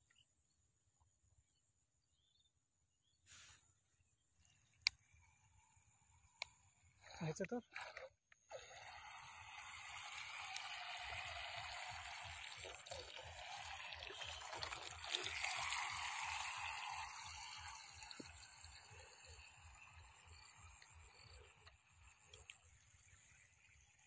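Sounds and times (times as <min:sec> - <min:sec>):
hiss of spray: 0:03.3 - 0:03.6
model speed boat running: 0:04.9 - 0:24.0.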